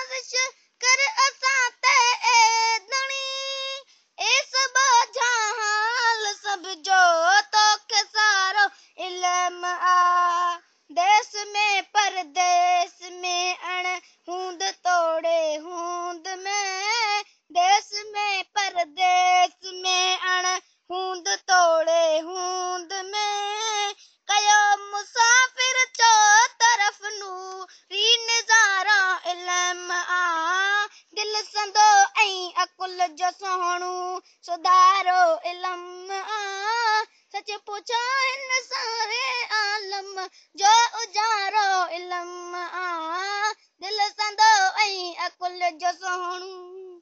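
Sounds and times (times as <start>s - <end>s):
child chanting: 0.0s - 47.0s.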